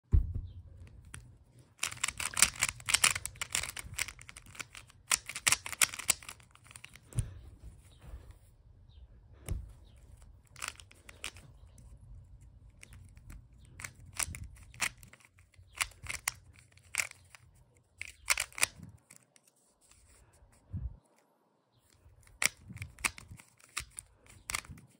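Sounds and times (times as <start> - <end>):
puzzle cube clacking turns: 0.9 - 7.1, 10.1 - 20.2, 22.0 - 24.9.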